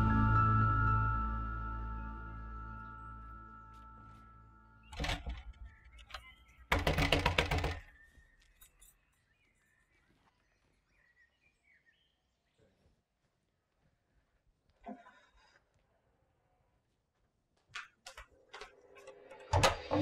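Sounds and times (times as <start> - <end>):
hand banging on wooden door: 6.7 - 7.8
faint bird chirps: 7.7 - 13.0.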